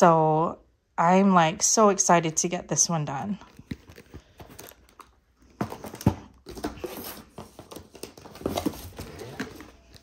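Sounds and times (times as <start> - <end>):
cardboard packaging rustling: 3.4 - 10.0.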